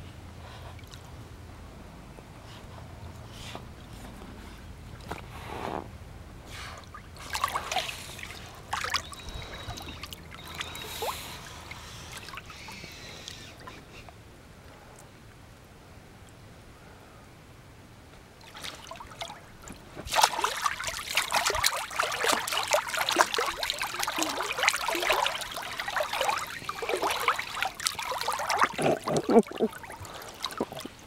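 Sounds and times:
water splashing in pool: 0:06.8 - 0:13.4, 0:18.4 - 0:31.0.

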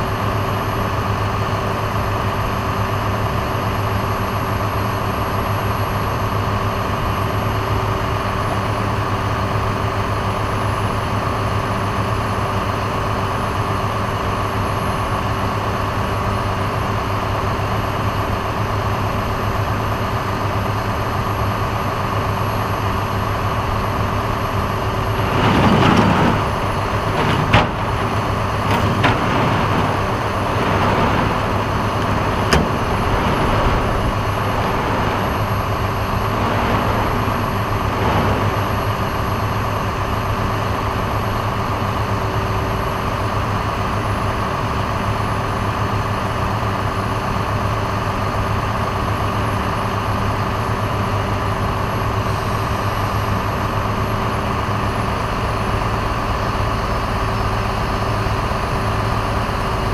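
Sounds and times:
tow truck engine idling: 0:16.9 - 0:49.2.

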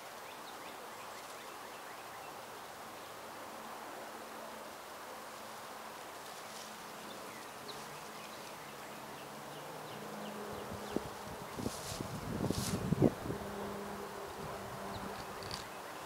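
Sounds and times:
flying insect buzzing: 0:09.9 - 0:15.8
brief rustles: 0:11.6 - 0:12.9.

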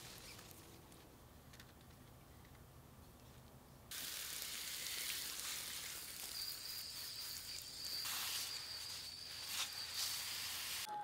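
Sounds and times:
hose spraying water: 0:03.9 - 0:10.9
thin high tone: 0:05.9 - 0:11.0.

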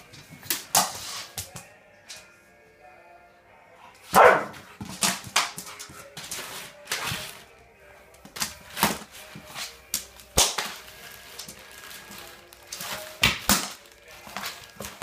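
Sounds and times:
puppy barking sharply: 0:04.1 - 0:04.6.

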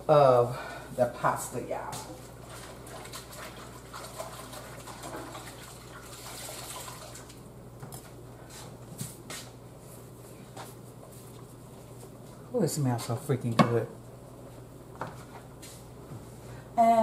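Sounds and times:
faucet running into sink: 0:03.4 - 0:07.4.

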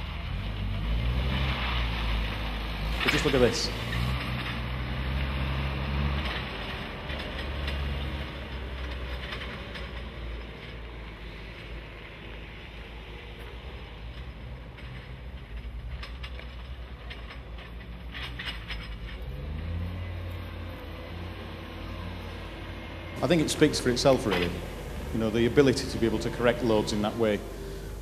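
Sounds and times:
diesel engine running: 0:00.0 - 0:28.0
metallic clicks and knocks: 0:06.1 - 0:12.5, 0:13.3 - 0:27.2.

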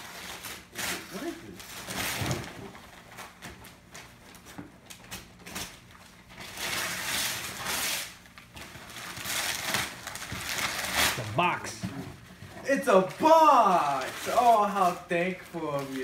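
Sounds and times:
wrapping paper tearing: 0:00.0 - 0:04.4, 0:05.0 - 0:11.8, 0:12.7 - 0:16.0.

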